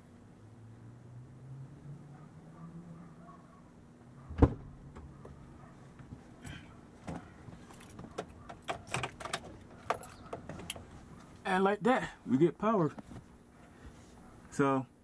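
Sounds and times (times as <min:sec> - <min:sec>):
car door shutting: 0:04.3 - 0:05.1.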